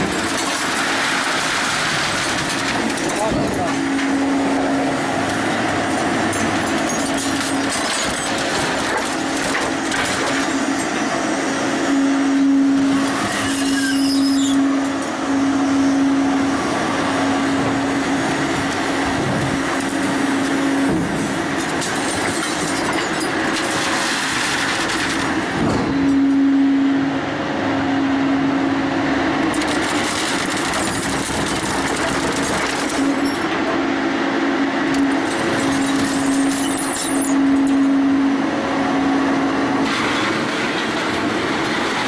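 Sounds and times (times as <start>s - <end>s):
hydraulic hum: 24.3s - 29.9s
steel bars scraping and grinding: 35.2s - 37.8s.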